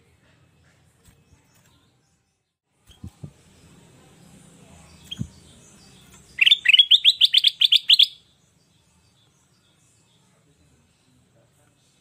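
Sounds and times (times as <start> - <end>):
bird calling rising notes: 6.4 - 8.2.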